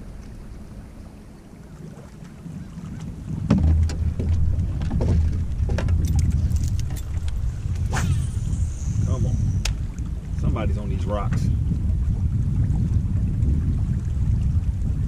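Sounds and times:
knocks and clunks on boat: 0:00.0 - 0:08.0, 0:09.6 - 0:15.0
low rumble: 0:00.0 - 0:15.0.

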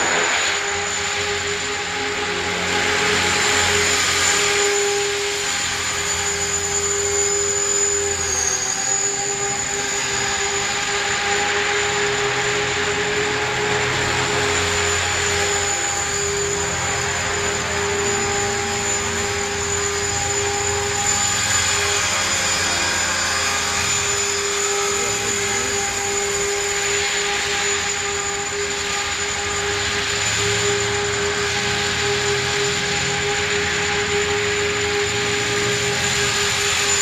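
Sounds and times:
rotor blades whooshing: 0:00.0 - 0:01.9
high whine of motor and gears: 0:00.0 - 0:37.0.

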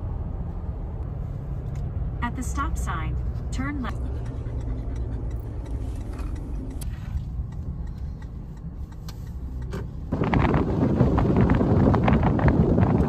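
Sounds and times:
car road noise: 0:00.0 - 0:13.0
wind buffeting microphone: 0:10.0 - 0:13.0.

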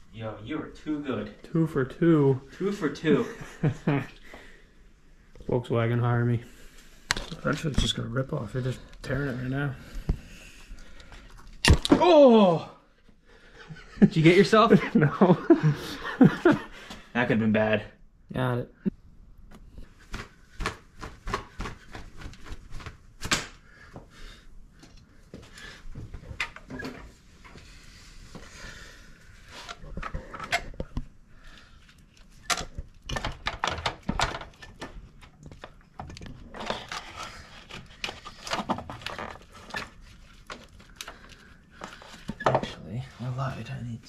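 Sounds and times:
hoses and pipe clicking and knocking: 0:31.8 - 0:42.7.

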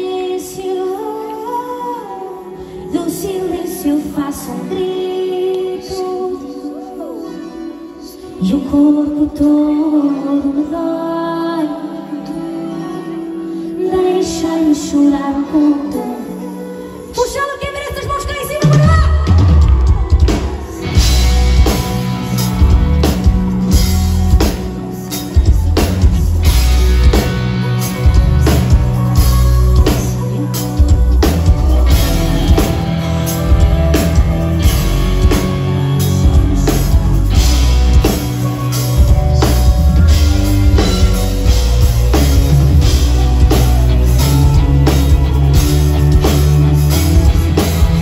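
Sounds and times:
guitar sustaining notes: 0:19.3 - 0:48.0
heavy low end bass: 0:30.9 - 0:38.3.

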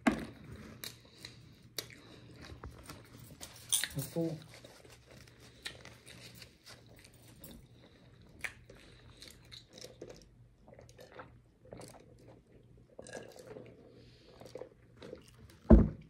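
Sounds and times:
chewing and crunching food: 0:00.2 - 0:15.7.

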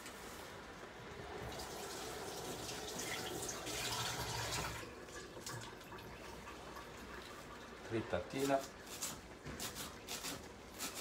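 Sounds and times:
water running from a tap: 0:01.2 - 0:08.8.

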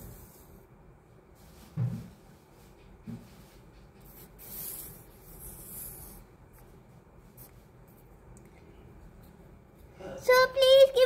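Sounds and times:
soft thump: 0:01.7 - 0:02.2.

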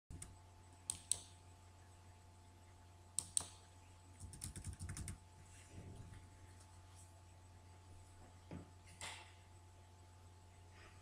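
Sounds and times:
low electrical hum: 0:00.1 - 0:11.0
computer keyboard typing: 0:04.2 - 0:05.2.

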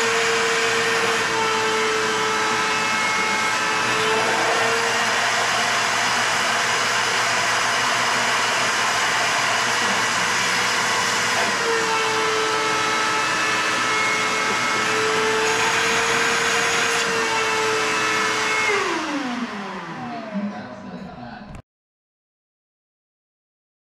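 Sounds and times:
shop vacuum motor whine: 0:00.0 - 0:21.0.

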